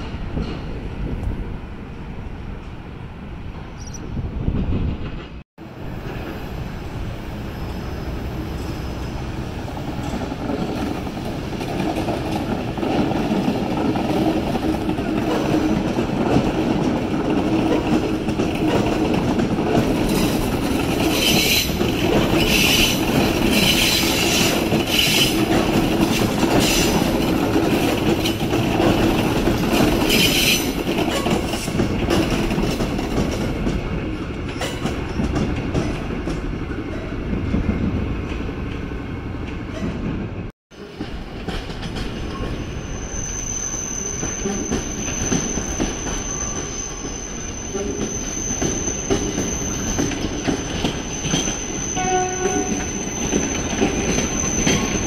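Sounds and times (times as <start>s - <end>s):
train rumble: 0.0s - 55.0s
wheel squeals: 20.0s - 25.6s, 42.3s - 55.0s.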